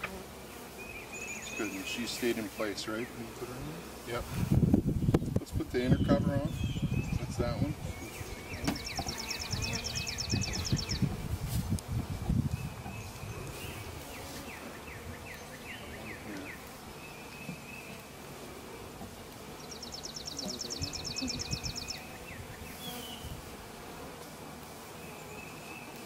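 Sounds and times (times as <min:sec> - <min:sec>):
bees buzzing: 0:00.0 - 0:26.0
songbird chirping and trilling: 0:00.7 - 0:03.3, 0:05.0 - 0:11.2, 0:12.5 - 0:18.1, 0:19.5 - 0:23.4.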